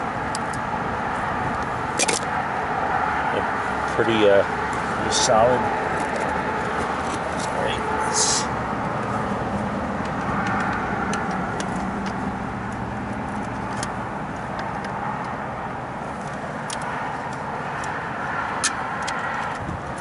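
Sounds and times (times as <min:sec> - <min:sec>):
steady mechanical drone: 0:00.0 - 0:20.0.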